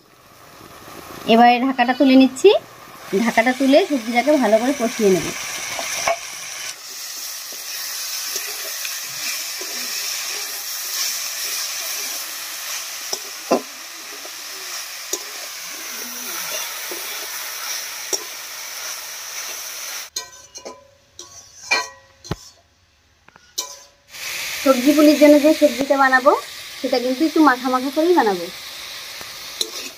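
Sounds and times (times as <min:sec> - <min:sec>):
vegetables sizzling in oil: 0:00.0 - 0:20.6, 0:23.6 - 0:29.9
metal spatula scraping: 0:05.4 - 0:19.5, 0:20.1 - 0:22.7, 0:23.4 - 0:24.0, 0:29.6 - 0:29.9.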